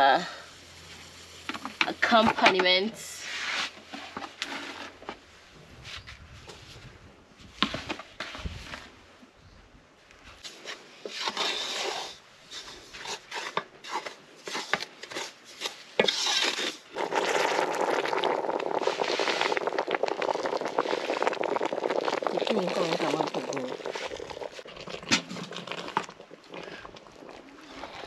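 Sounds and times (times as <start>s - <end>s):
wooden spoon scraping in pot: 0.8s - 5.2s, 7.6s - 8.9s, 10.4s - 19.9s, 20.5s - 28.0s
water pouring from kettle: 17.0s - 28.0s.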